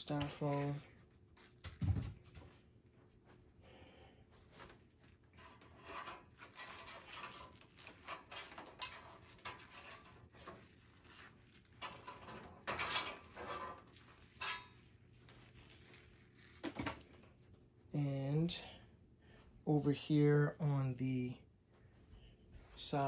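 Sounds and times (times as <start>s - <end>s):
foam scraping against metal: 5.4s - 14.8s.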